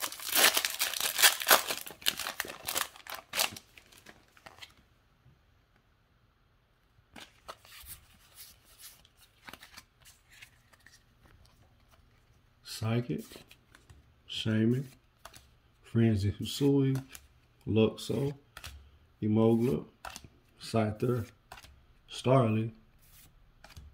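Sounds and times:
foil wrapper crinkling and tearing: 0:00.0 - 0:04.5
trading cards being handled: 0:00.0 - 0:04.8, 0:07.2 - 0:15.6.

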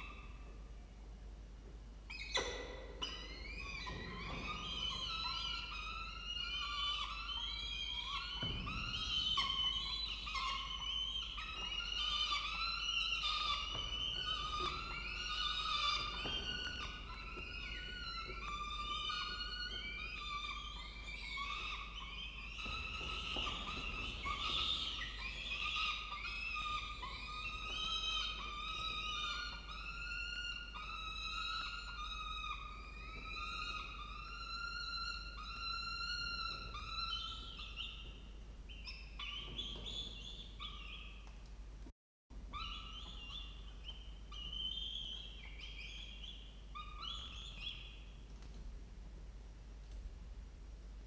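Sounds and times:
falcon chicks begging calls: 0:03.4 - 0:38.1.

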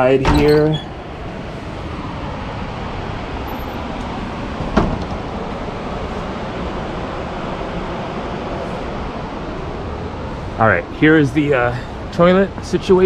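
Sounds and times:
river white water rushing: 0:01.0 - 0:10.8.

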